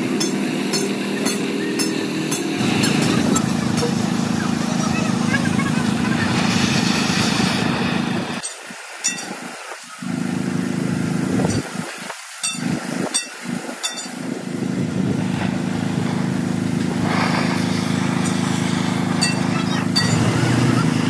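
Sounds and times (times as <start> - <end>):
motor humming: 0.0 - 9.4, 12.4 - 21.0.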